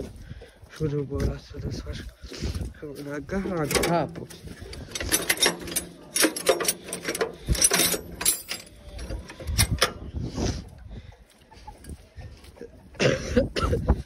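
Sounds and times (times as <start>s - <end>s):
metal parts clinking: 3.4s - 10.0s.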